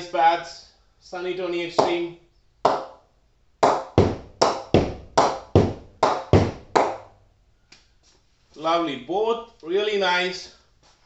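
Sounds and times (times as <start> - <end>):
ball pinging on cricket bat: 3.6 - 7.0.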